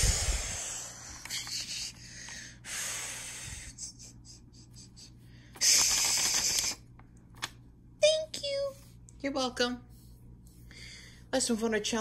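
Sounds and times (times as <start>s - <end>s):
child making hissing shh sound: 5.6s - 6.8s.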